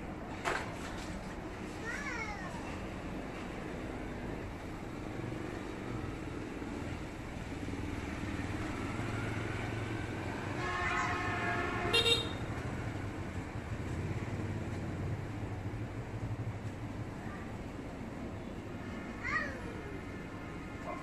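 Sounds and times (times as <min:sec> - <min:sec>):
road traffic: 0:00.0 - 0:21.0
vehicle horn: 0:10.5 - 0:12.5.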